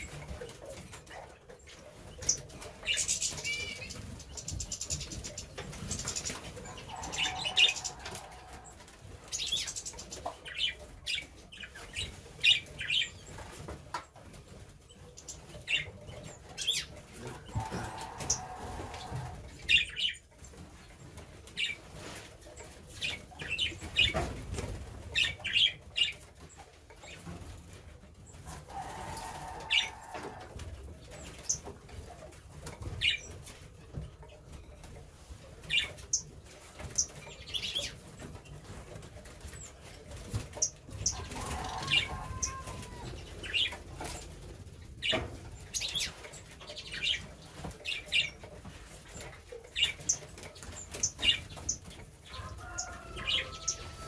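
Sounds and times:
small birds chirping: 0.0s - 54.0s
wings fluttering: 35.6s - 54.0s.

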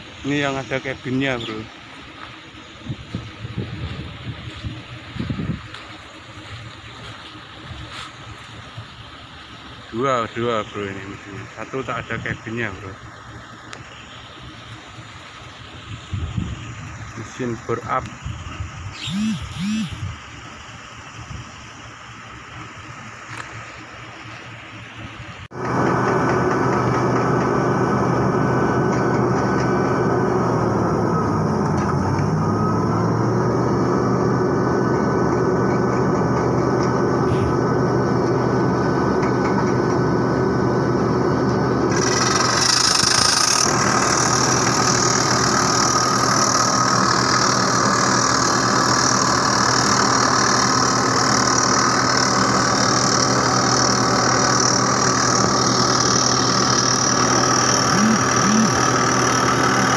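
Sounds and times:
rock drill running: 41.8s - 59.9s.

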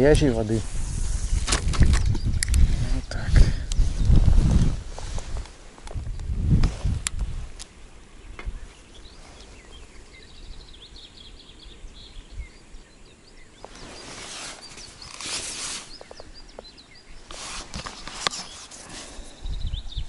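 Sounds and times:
small birds chirping: 0.0s - 6.5s, 7.1s - 20.0s
rustling: 3.8s - 7.8s, 13.6s - 16.6s, 17.2s - 19.4s.

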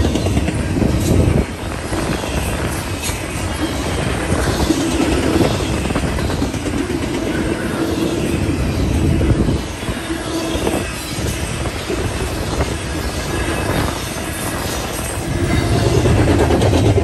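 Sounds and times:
freight train wheels rumbling on rails: 0.0s - 17.0s.

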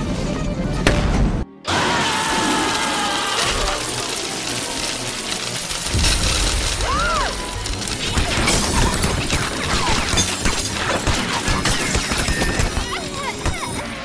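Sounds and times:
music: 0.0s - 14.0s
coins clattering: 2.2s - 14.0s.

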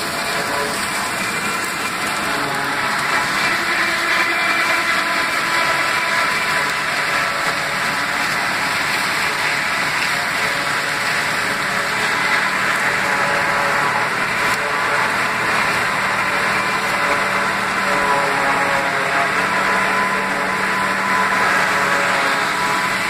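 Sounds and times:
tractor diesel engine under load: 0.0s - 23.0s.

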